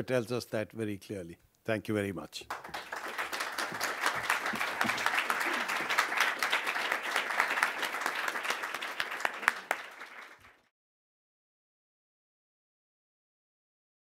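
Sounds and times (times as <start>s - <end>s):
audience applauding: 2.5s - 10.7s.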